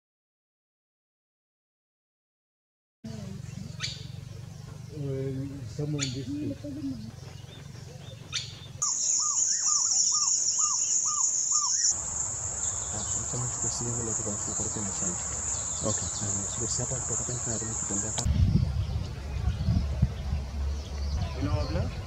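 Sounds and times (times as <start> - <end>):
insects trilling: 8.8 - 18.3.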